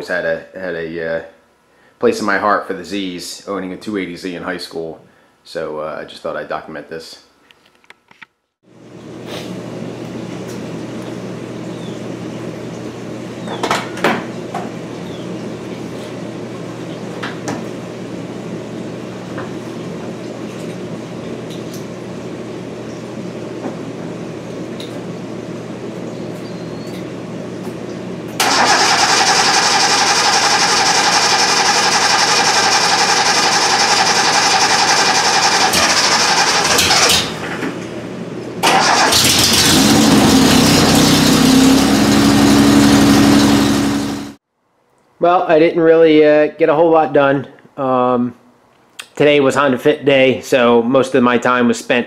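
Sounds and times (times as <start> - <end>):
car engine cranking: 28.4 - 37.6, 38.6 - 44.3
car engine running: 39.1 - 44.4.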